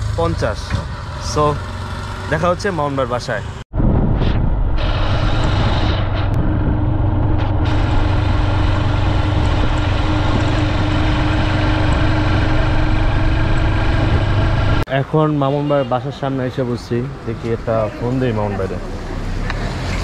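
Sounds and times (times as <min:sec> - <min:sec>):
road and wind noise: 0:00.0 - 0:20.0
motorcycle engine running: 0:06.4 - 0:14.8.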